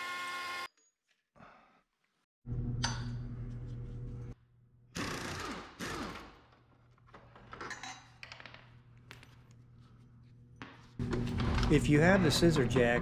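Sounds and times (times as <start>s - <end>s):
pneumatic impact wrench: 5.0s - 6.3s.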